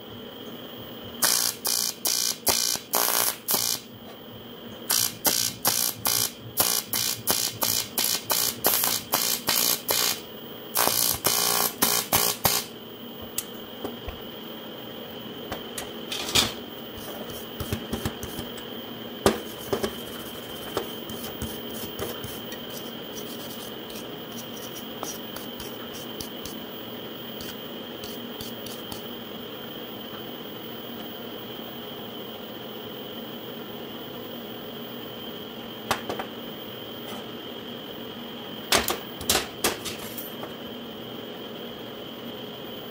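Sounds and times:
steady high whine: 0.0s - 42.9s
welding arc buzzing in pulses: 1.2s - 3.9s, 4.9s - 12.8s
brush scrubbing metal: 19.5s - 26.6s.

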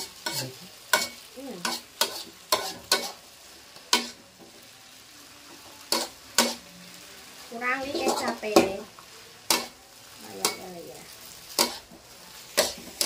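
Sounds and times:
spatula clanking on wok: 0.0s - 3.2s, 3.9s - 4.2s, 5.9s - 6.6s, 9.5s - 9.8s, 10.4s - 10.8s, 11.5s - 13.0s
faint sizzle: 0.0s - 13.0s.

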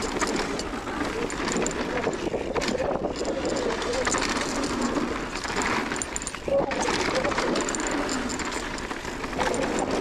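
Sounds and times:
bike rattling clicks: 0.0s - 10.0s
tyres rolling over dirt and stones: 0.0s - 10.0s.

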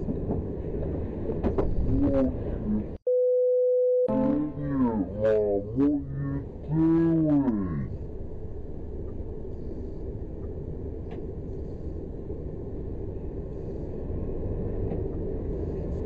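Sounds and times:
lorry engine rumbling: 4.1s - 16.0s.

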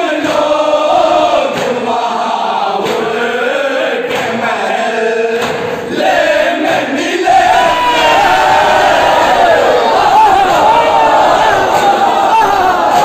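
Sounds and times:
lead voice chanting: 0.0s - 13.0s
men chanting in unison: 0.0s - 13.0s
chest-beating slaps: 1.5s - 1.8s, 2.8s - 3.2s, 4.1s - 4.4s, 5.4s - 5.8s.

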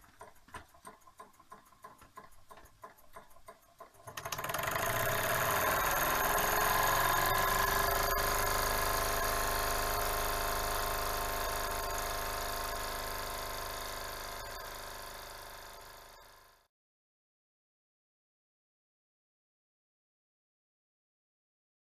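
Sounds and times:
toy steam engine whirring: 0.2s - 16.7s.

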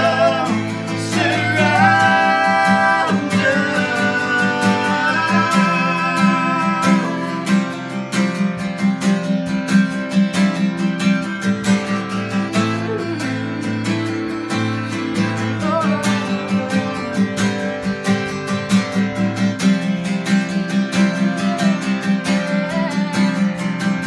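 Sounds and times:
man and woman singing: 0.0s - 7.9s, 12.5s - 17.8s, 21.0s - 23.5s
acoustic guitar strumming: 0.0s - 24.0s.

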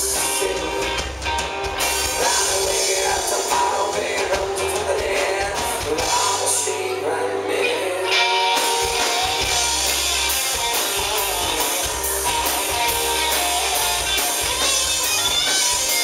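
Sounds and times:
person singing: 0.0s - 1.2s, 2.0s - 9.9s
rock band playing: 0.0s - 16.0s.

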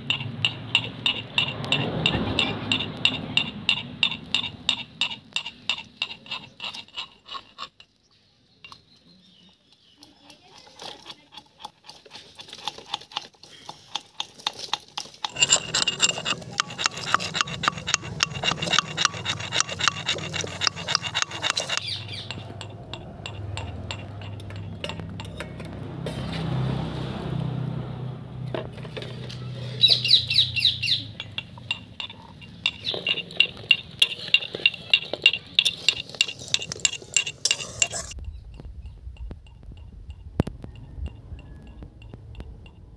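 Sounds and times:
metal spoon clinking in pan: 0.0s - 7.0s, 15.3s - 25.7s, 30.9s - 38.2s.

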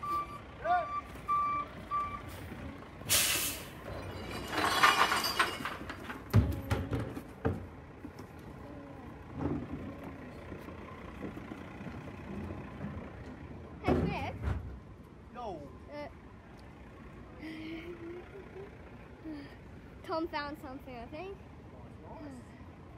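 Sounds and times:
truck reversing beeps: 0.0s - 5.8s, 9.0s - 19.2s
air brakes hissing: 2.2s - 4.0s.

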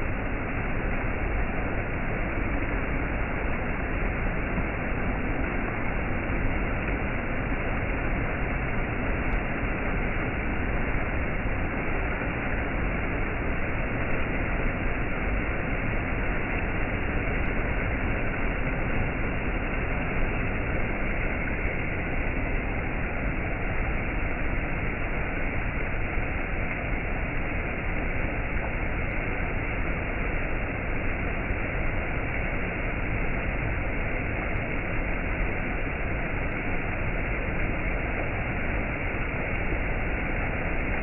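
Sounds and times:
waterfall rushing over rocks: 0.0s - 41.0s.

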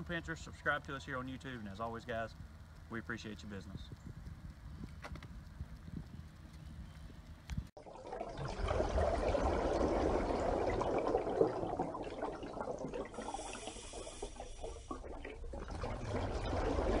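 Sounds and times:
running water: 7.8s - 17.0s.

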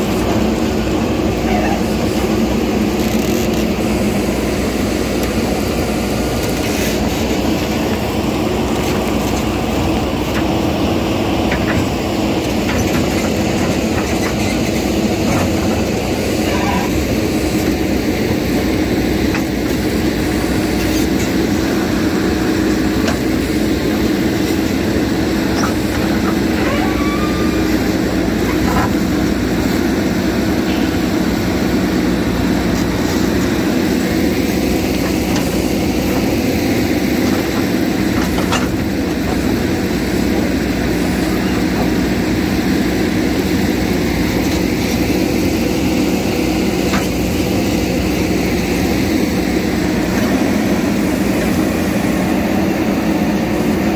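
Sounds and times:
backhoe digging and scraping soil: 0.0s - 53.9s
diesel engine running under load: 0.0s - 53.9s.

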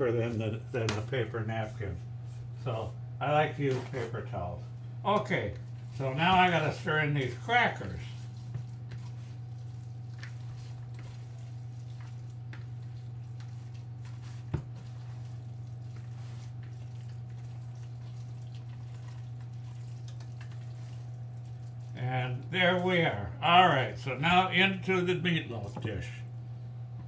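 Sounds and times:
steady low hum: 0.0s - 27.0s
wet squishing of meat mixture: 5.2s - 22.6s.

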